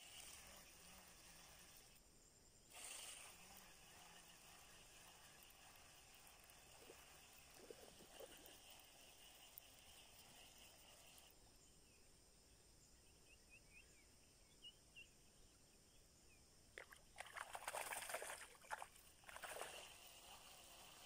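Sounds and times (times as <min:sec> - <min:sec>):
small bird chirps: 0:02.7 - 0:17.2
fish splashing at water surface: 0:16.8 - 0:20.0.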